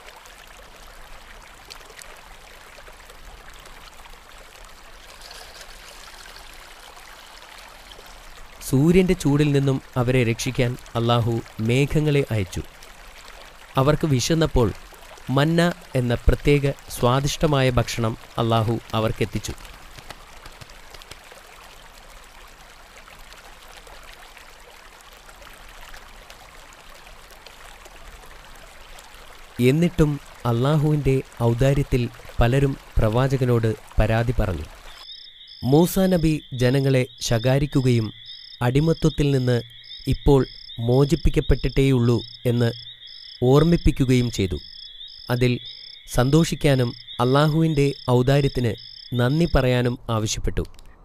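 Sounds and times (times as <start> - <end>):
water pouring into bucket: 0.0 - 35.0.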